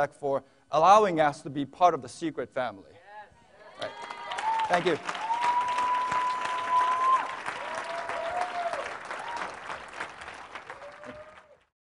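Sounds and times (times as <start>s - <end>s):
audience applauding and cheering: 3.6s - 11.7s
drawn-out whoops: 3.9s - 9.6s.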